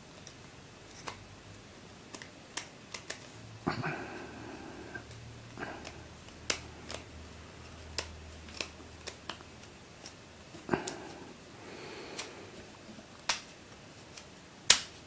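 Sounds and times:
plastic puzzle clicks: 0:02.1 - 0:03.3, 0:05.8 - 0:10.2.

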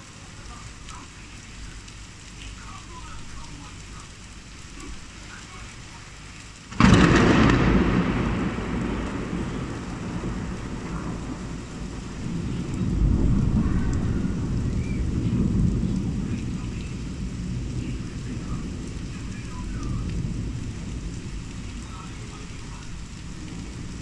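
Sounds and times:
steady rain: 0:00.0 - 0:24.0
close thunderclap: 0:06.7 - 0:24.0
low rumble of thunder: 0:06.7 - 0:24.0.

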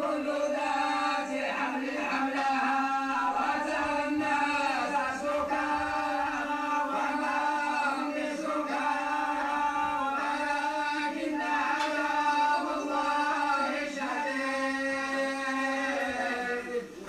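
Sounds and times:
men chanting in unison: 0:00.0 - 0:17.0.

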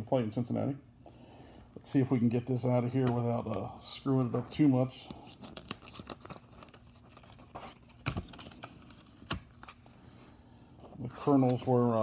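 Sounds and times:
plastic sleeve rustling: 0:03.2 - 0:09.9.

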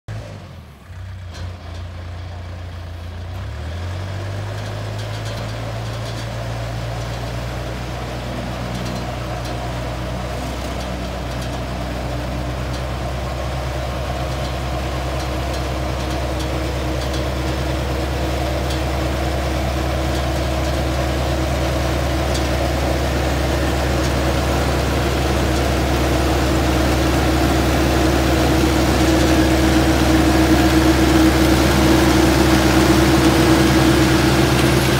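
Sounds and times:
harvester engine running: 0:00.1 - 0:34.9.

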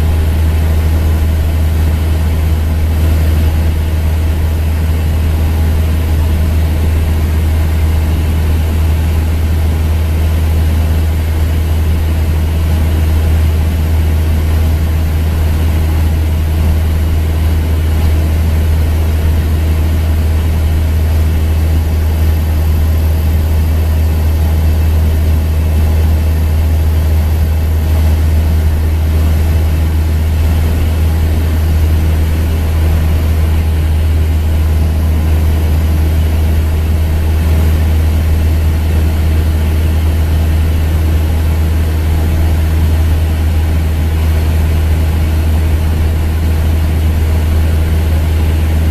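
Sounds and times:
aircraft engine droning in cabin: 0:00.0 - 0:48.9.

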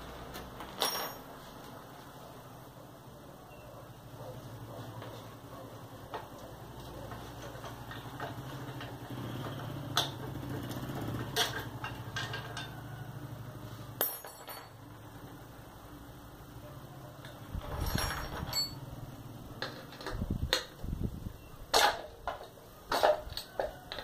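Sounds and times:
hand tools clinking on metal: 0:00.3 - 0:01.7, 0:06.1 - 0:13.0, 0:14.0 - 0:14.9, 0:17.2 - 0:20.8, 0:21.7 - 0:24.0.

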